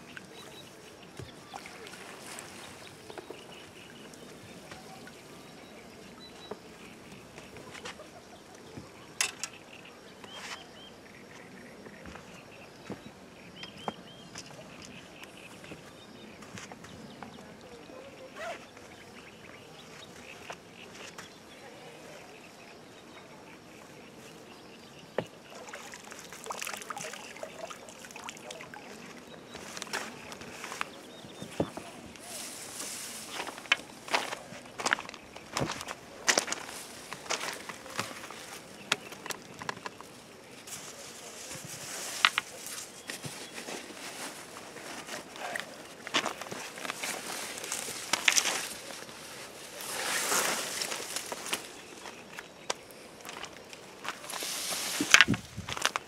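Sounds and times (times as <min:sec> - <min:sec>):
small birds chirping: 0:00.0 - 0:56.0
water sloshing and splashing: 0:01.1 - 0:05.5, 0:25.5 - 0:30.8.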